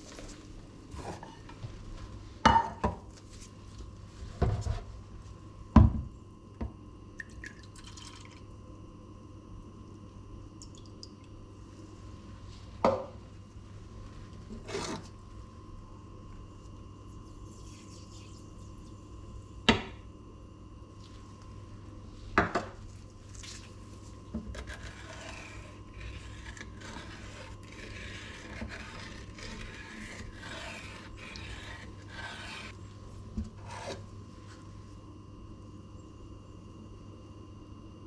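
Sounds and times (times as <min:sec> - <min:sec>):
spoon stirring in a saucepan: 0:24.0 - 0:32.8.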